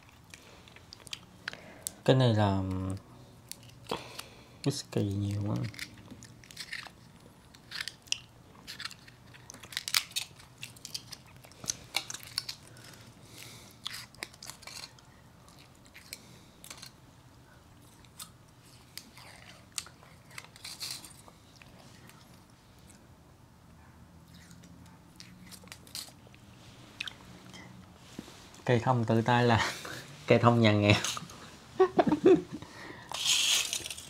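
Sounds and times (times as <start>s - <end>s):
chewing crunchy chocolate: 0.0s - 2.0s, 2.7s - 17.0s, 17.7s - 23.0s, 24.2s - 26.4s.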